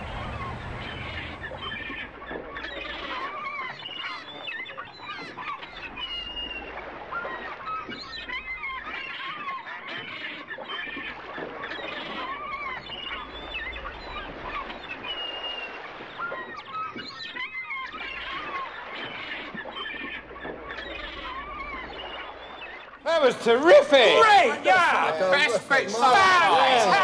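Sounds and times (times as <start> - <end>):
steady low rumble: 0.0 - 3.0
waterfowl honking and quacking: 0.0 - 27.0.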